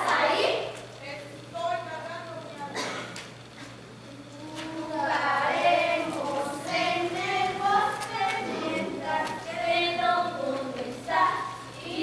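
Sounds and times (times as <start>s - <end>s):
children singing: 4.8s - 12.0s.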